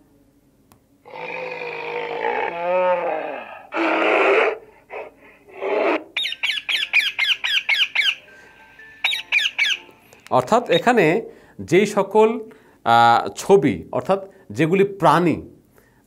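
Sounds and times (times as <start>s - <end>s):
recorded bear growl: 1.0s - 6.1s
high bird chirps: 6.2s - 8.4s, 9.0s - 10.0s.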